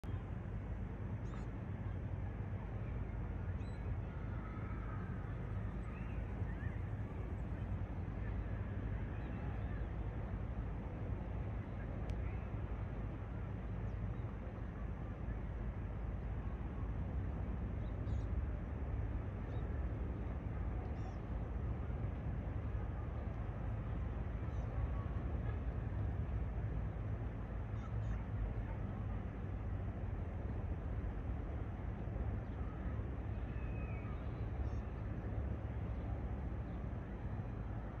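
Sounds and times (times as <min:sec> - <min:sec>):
outdoor ambient rumble and hiss: 0:00.0 - 0:38.0
faint bird chirps: 0:01.2 - 0:01.5, 0:03.5 - 0:07.6, 0:33.4 - 0:35.0.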